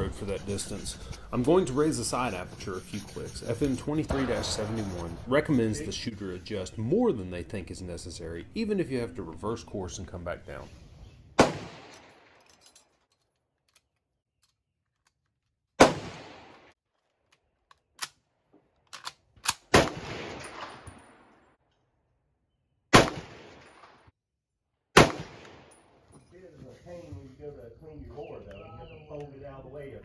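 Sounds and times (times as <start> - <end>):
rifle shots echoing: 4.1 - 5.5, 11.4 - 12.4, 15.8 - 16.7, 19.5 - 21.3, 22.9 - 24.0, 25.0 - 25.8.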